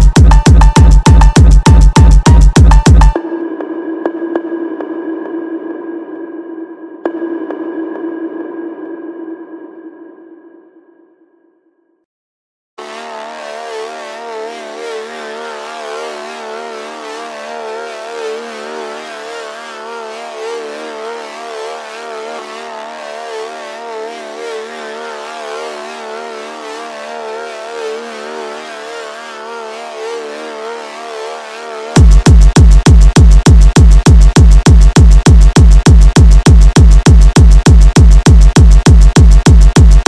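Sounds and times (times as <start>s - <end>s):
warbling synth chord: 12.8s - 32.5s.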